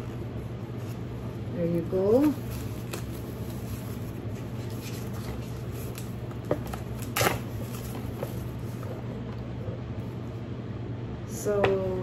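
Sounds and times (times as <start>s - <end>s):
steady low hum: 0.0s - 12.0s
tissue paper rustling: 2.1s - 9.0s.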